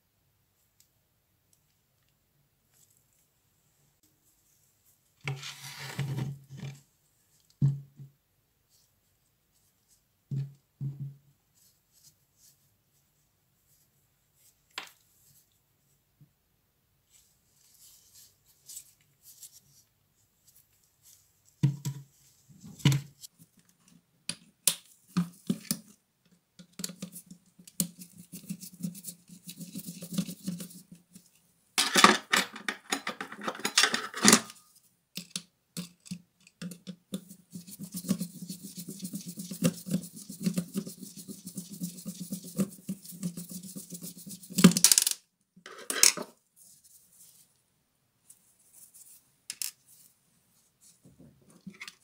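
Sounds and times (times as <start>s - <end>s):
rapid rasping scrapes: 37.2s - 44.6s.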